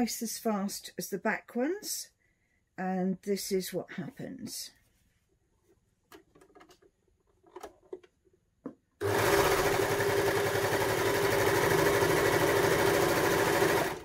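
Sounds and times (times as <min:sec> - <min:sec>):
overlocker sewing machine running: 0:09.0 - 0:14.0.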